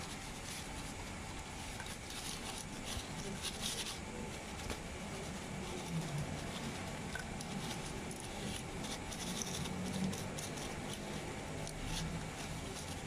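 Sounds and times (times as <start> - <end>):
hands scratching and rustling: 0.0 - 13.0
steady background hiss: 0.0 - 13.0.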